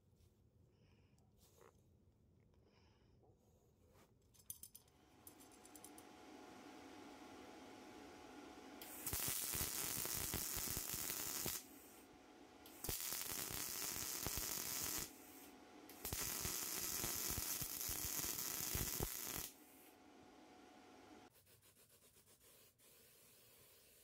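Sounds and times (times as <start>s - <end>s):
welder arc crackling: 5.3s - 21.3s.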